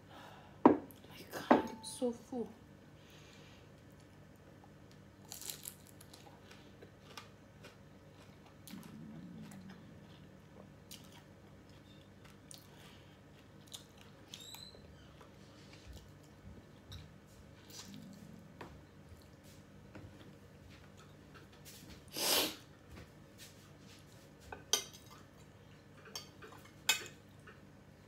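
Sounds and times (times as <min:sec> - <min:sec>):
crunching and chewing fried food: 0:03.7 - 0:21.9.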